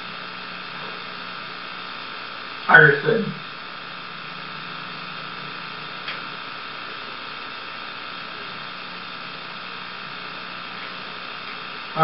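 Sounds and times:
electrical hum and hiss: 0.0s - 12.0s.

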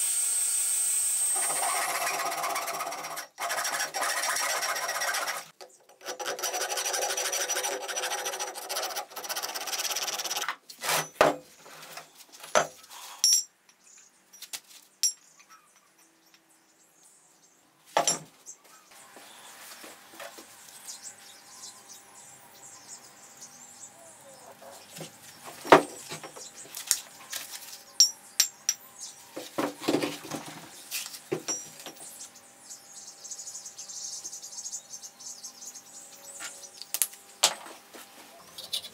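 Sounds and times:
hand file rasping on steel: 1.6s - 11.0s
marking tool scratching steel: 1.6s - 11.1s
metallic clinks and knocks: 13.2s - 16.2s, 31.4s - 32.0s.

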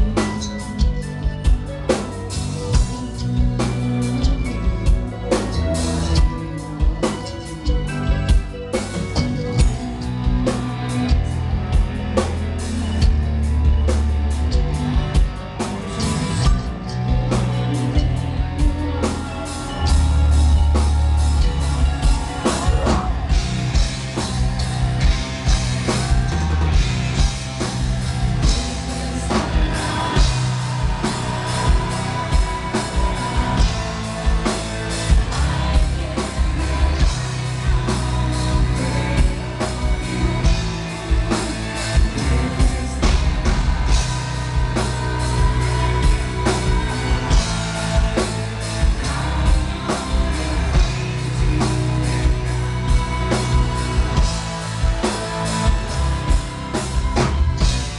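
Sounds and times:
distorted guitars and bass: 0.0s - 57.9s
drum kit: 0.0s - 57.9s
woman singing: 13.7s - 57.9s.

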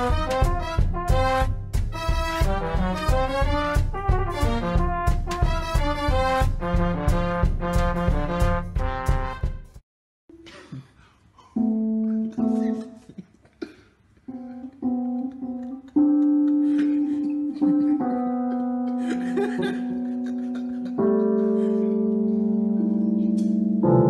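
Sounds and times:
electronic keyboard notes: 11.6s - 13.1s, 14.3s - 24.0s.

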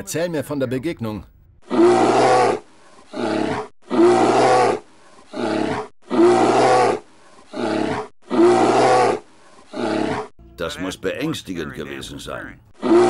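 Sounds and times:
drawn-out roar-like cry: 1.7s - 10.3s, 12.8s - 13.0s.

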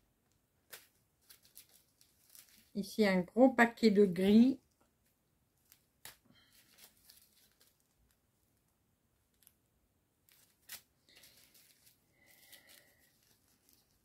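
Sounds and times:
plastic bags crinkling: 0.7s - 2.8s, 5.6s - 8.2s, 10.3s - 14.0s.

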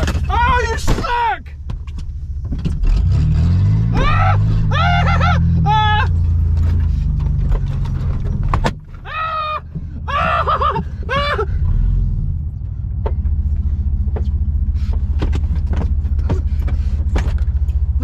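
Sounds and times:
truck engine idling: 3.9s - 18.0s
man yelling and laughing: 4.0s - 6.2s, 9.0s - 11.6s
clicks and rattles: 6.2s - 9.1s.

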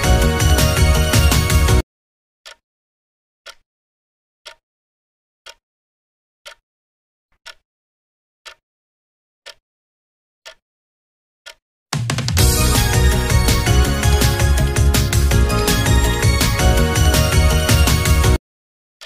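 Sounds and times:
background music: 0.0s - 1.8s, 12.0s - 18.4s
clock ticking: 4.4s - 4.6s, 6.4s - 6.6s, 7.4s - 7.6s, 8.4s - 8.6s, 9.4s - 9.6s, 10.4s - 10.6s, 11.4s - 18.4s.

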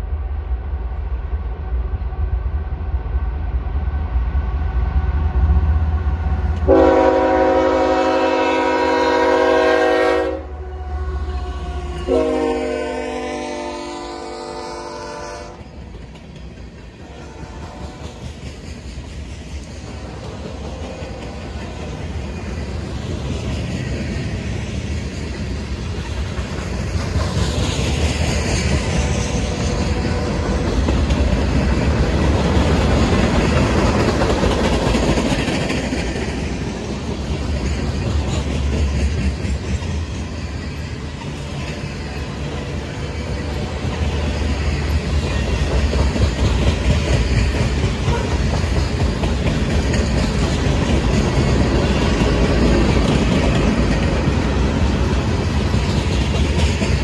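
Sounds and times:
train wheels rumbling on rail: 0.0s - 57.0s
clickety-clack over rail joints: 15.0s - 57.0s.

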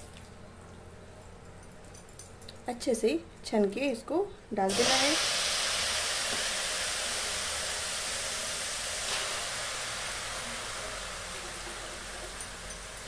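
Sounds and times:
mushrooms sizzling in a pan: 4.7s - 13.0s.

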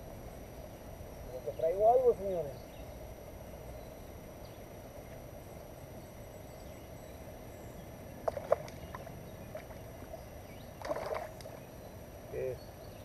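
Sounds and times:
fish splashing in water: 8.2s - 11.6s.

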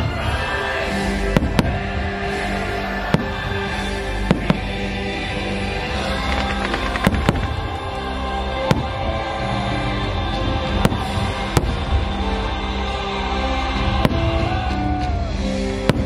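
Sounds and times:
soundtrack music: 0.0s - 16.0s
fireworks bangs: 5.9s - 9.2s.

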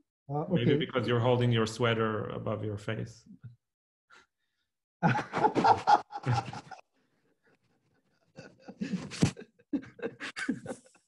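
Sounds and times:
person's voice: 0.3s - 3.2s.

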